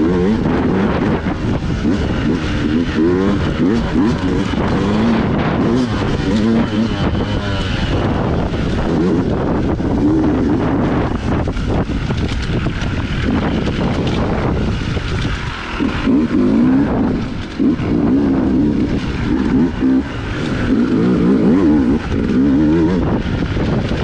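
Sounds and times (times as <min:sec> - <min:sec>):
dirt bike engine revving: 0:00.0 - 0:24.0
wind buffeting microphone: 0:00.0 - 0:24.0.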